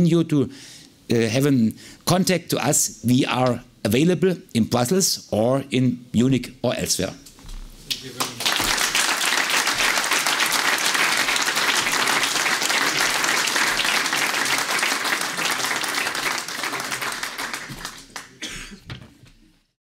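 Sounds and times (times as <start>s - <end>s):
audience applauding: 7.9s - 18.4s.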